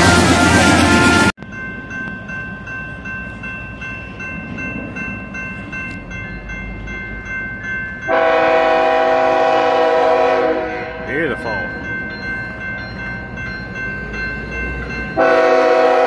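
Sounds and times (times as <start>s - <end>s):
locomotive air horn: 0.0s - 1.3s, 8.1s - 11.0s, 15.2s - 16.0s
railroad crossing bell ringing: 0.0s - 16.0s.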